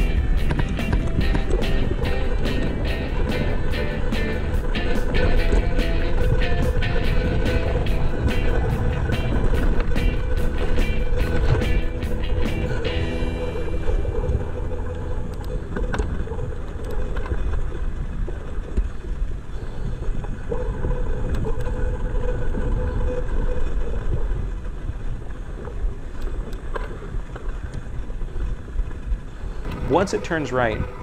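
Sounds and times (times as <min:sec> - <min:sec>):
bike clicks and rattles: 0:00.0 - 0:13.0, 0:14.0 - 0:25.0, 0:25.6 - 0:31.0
wind on microphone: 0:00.0 - 0:31.0
tyres rolling on dirt: 0:29.6 - 0:31.0.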